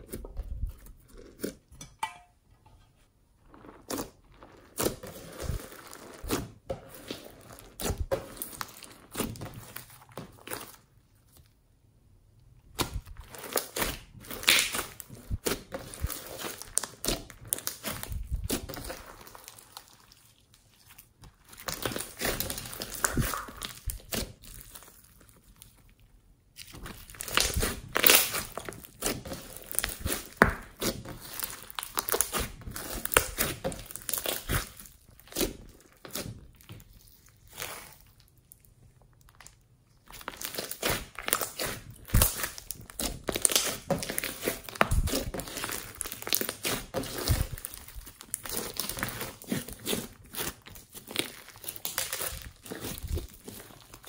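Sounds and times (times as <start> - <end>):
slime crackling and popping: 3.5 - 11.6, 12.6 - 54.0.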